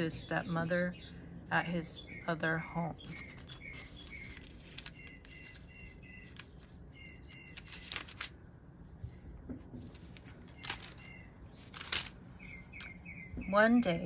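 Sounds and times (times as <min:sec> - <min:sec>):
small birds chirping: 0:00.0 - 0:08.0, 0:10.2 - 0:14.0
book pages turning: 0:03.0 - 0:12.2
paper rustles and taps: 0:07.5 - 0:08.3, 0:09.0 - 0:11.0, 0:11.7 - 0:12.2.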